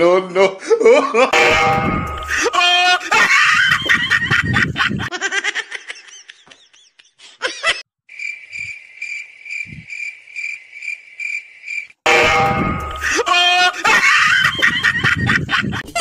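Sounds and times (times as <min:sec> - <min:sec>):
cricket chirping: 0:08.1 - 0:12.0.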